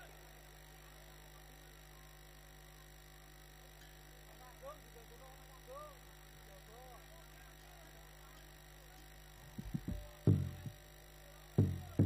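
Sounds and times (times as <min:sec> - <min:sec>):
sound system hum: 0:00.0 - 0:12.0
heavy drum strikes: 0:09.6 - 0:10.8, 0:11.6 - 0:12.0.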